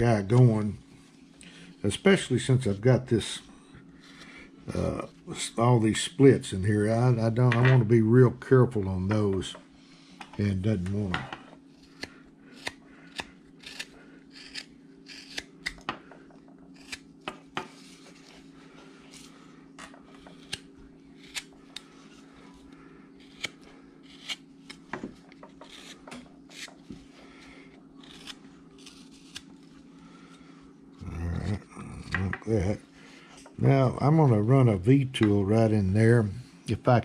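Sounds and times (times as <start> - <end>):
faint low hum: 0.0 - 37.0
knife slicing wood: 11.8 - 15.9, 16.8 - 17.7, 20.2 - 21.5, 23.2 - 24.9, 28.0 - 29.5.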